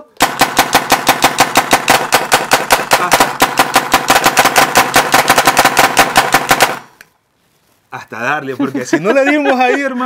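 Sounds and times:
paintball marker firing: 0.2 - 7.1.

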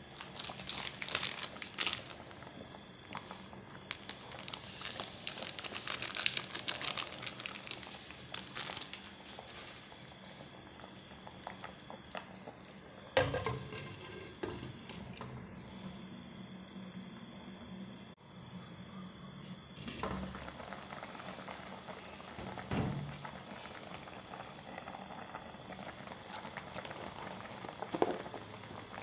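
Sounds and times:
plastic packet crinkling: 0.1 - 2.2, 3.2 - 9.8.

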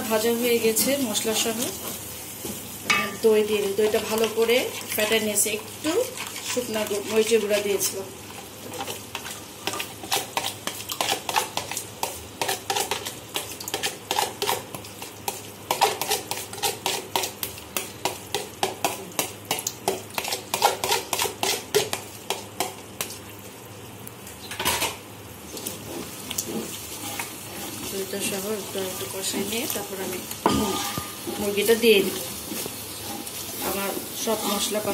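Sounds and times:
light sizzling: 0.0 - 34.9
spatula scraping cooking pot: 5.8 - 22.8, 25.5 - 34.9.

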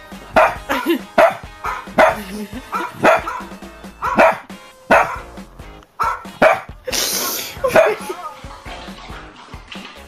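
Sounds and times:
background music: 0.0 - 10.0
puppy barking: 0.4 - 5.4, 6.0 - 6.8, 7.6 - 8.1.

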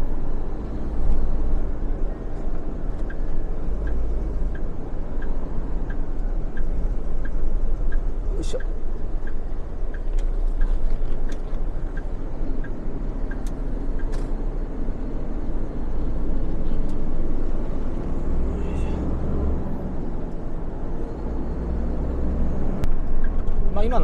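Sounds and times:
truck engine and road rumble: 0.0 - 24.0
faint regular tick: 2.3 - 14.4, 22.8 - 23.6.

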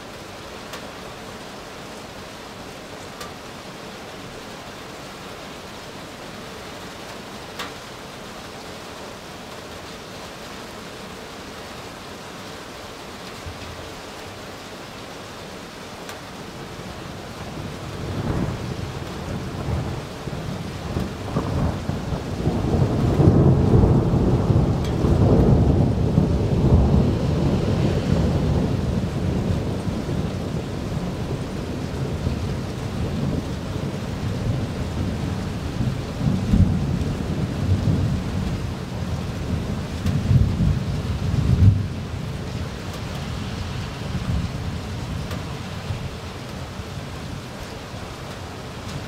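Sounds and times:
steady rain: 0.0 - 49.0
thunder rumbling: 17.3 - 42.6.

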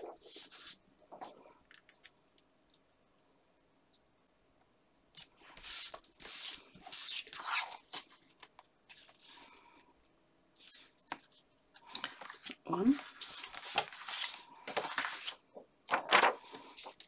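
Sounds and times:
paper rustling and sliding: 0.0 - 1.4, 5.4 - 9.6, 10.6 - 17.0.

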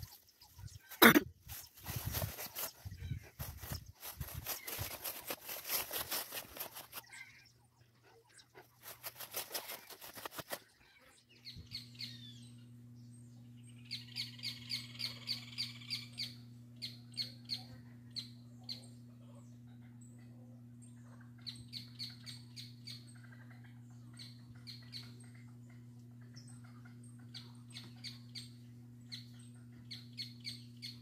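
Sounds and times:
tall grass rustling: 0.0 - 7.2, 8.8 - 10.6
steady low hum: 0.0 - 31.0.

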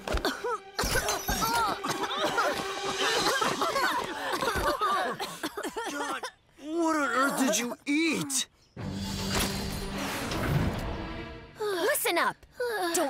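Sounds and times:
cartoon voices groaning and gagging: 5.9 - 8.5.

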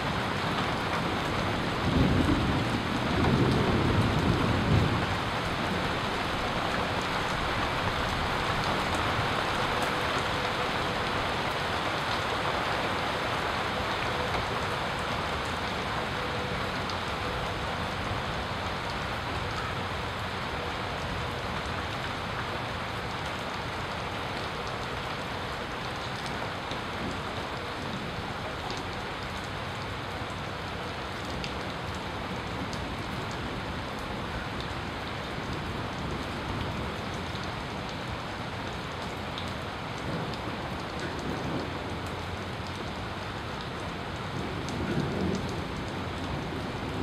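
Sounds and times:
steady rain hiss: 0.0 - 47.0
raindrops ticking: 31.2 - 46.8.

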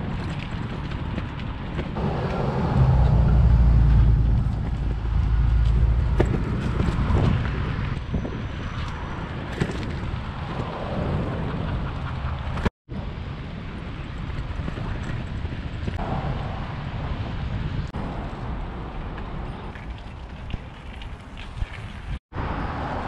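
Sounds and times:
wind buffeting microphone: 0.0 - 22.2.

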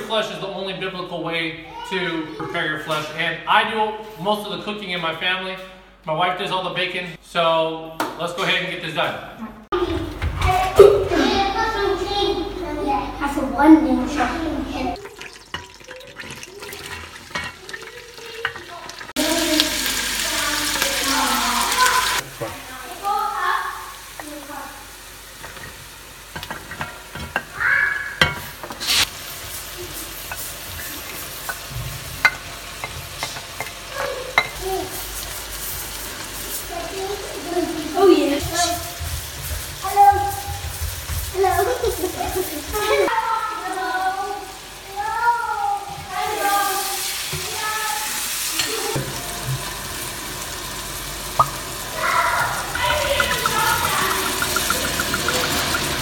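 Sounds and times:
vegetables sizzling in oil: 14.9 - 56.0
wine pouring into pot: 15.0 - 20.2, 52.6 - 56.0
wooden spoon stirring: 51.4 - 56.0.

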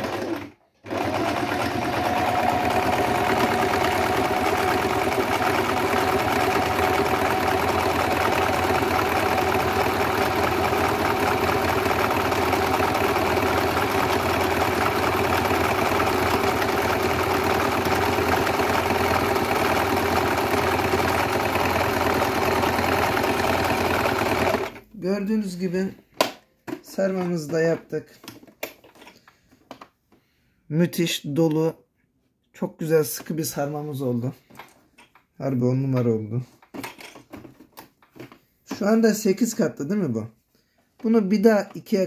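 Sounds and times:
sewing machine running: 0.0 - 24.9.

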